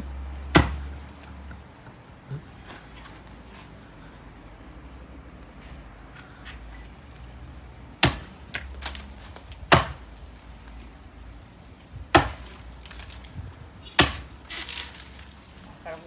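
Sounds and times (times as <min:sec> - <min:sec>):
axe chopping into trunk: 0:00.5 - 0:01.0, 0:08.0 - 0:10.1, 0:12.0 - 0:13.2, 0:14.0 - 0:14.9.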